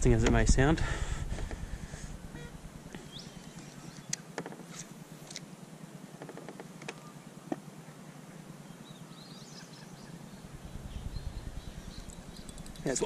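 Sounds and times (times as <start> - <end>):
low rumble: 0.0 - 4.1, 10.3 - 13.0
high bird chirps: 2.3 - 4.9, 8.7 - 13.0.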